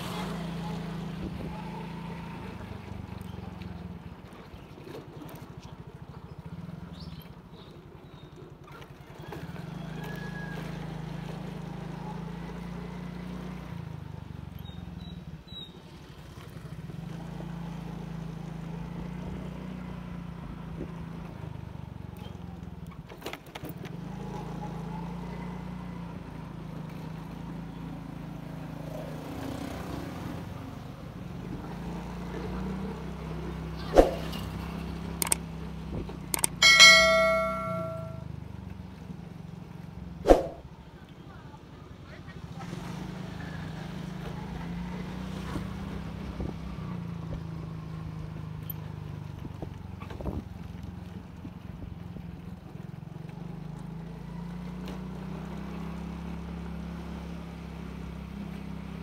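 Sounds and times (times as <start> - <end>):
motorcycle engine running: 33.4 - 35.6
brief clicks: 36.3 - 37.8.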